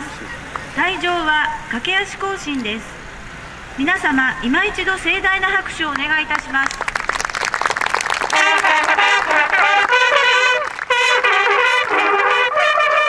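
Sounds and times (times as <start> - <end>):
applause: 5.9 - 13.0
bugle call: 8.1 - 13.0.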